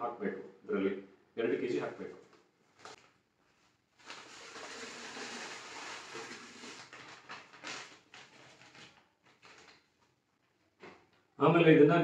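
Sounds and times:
paper packet rustling: 2.3 - 10.2
powder pouring into water: 4.0 - 8.4.

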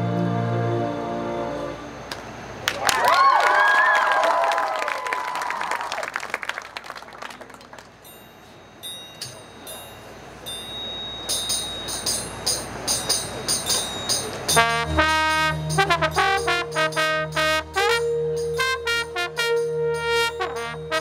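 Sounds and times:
brass section chords: 0.0 - 2.1, 14.5 - 21.0
people clapping: 2.1 - 8.0
high percussion ticks: 11.3 - 21.0.

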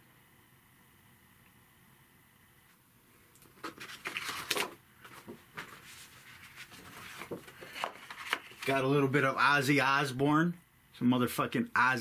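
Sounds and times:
picture frames knocking and rustling: 3.5 - 8.7.

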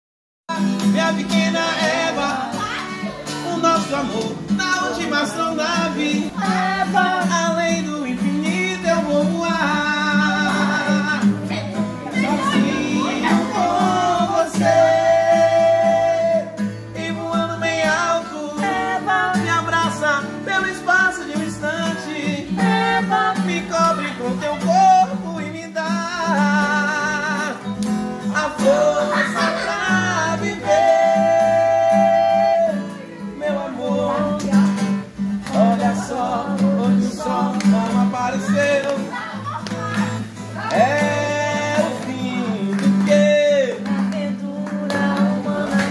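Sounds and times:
acoustic guitar strumming: 0.5 - 45.9
people singing: 0.5 - 45.9.

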